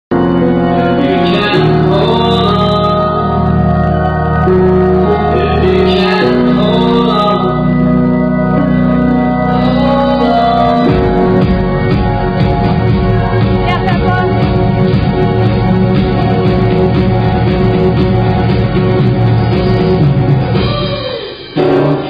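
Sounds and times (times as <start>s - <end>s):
person singing: 0.1s - 8.7s, 9.4s - 11.5s
organ chords: 0.1s - 22.0s.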